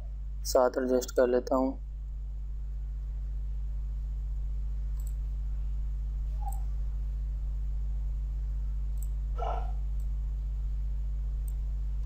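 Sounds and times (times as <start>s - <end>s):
low electrical hum: 0.0s - 12.0s
computer mouse clicks: 5.0s - 5.2s, 6.4s - 6.6s.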